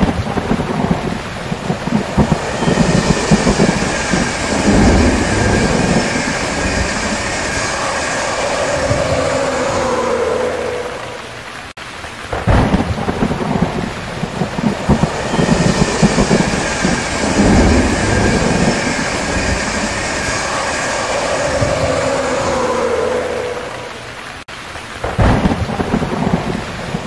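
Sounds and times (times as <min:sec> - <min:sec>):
thunder rumbling: 0:00.0 - 0:24.4, 0:25.0 - 0:27.0
heavy rain hiss: 0:00.0 - 0:27.0
hum sliding down in pitch: 0:01.1 - 0:11.7, 0:13.6 - 0:24.4.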